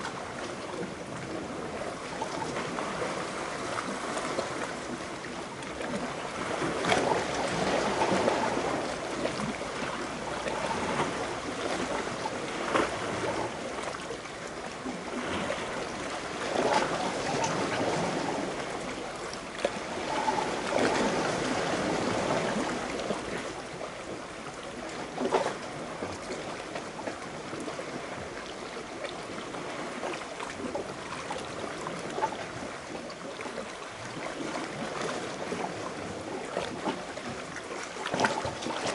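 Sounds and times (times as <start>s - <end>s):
water lapping against rocks: 0.0s - 38.9s
water slapping: 29.5s - 38.9s.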